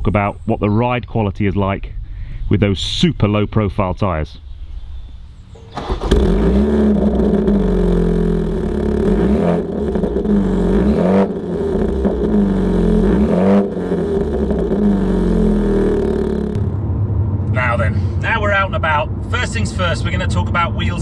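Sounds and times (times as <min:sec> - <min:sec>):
car engine exhaust revving: 0:05.7 - 0:16.9.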